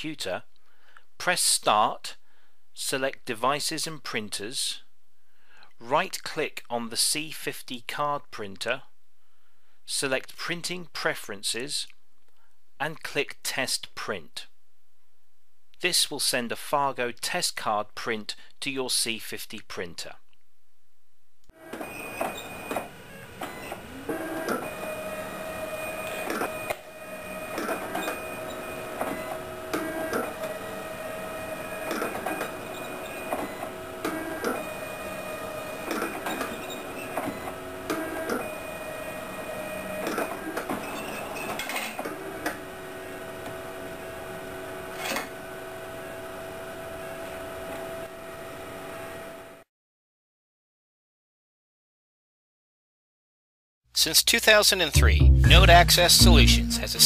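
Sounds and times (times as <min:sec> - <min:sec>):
card printer motor whine: 0:21.6 - 0:41.5.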